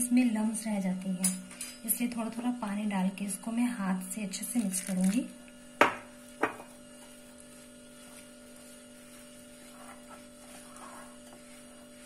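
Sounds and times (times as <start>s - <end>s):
low electrical hum: 0.0s - 12.0s
hand mixing batter in bowl: 4.1s - 12.0s.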